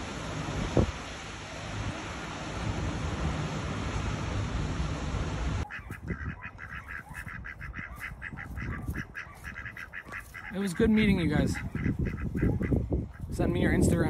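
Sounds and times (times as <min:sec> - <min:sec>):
wind and water noise: 0:00.0 - 0:14.0
ducks quacking: 0:05.6 - 0:13.8.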